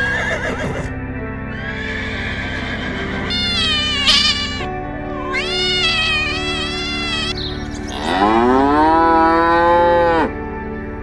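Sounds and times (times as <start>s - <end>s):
background music: 0.0s - 11.0s
cat meowing: 3.2s - 7.6s
cow mooing: 7.9s - 10.4s.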